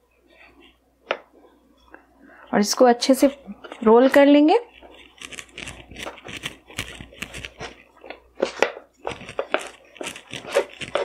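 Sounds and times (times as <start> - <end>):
rolling pin rolling dough: 2.8 - 11.0.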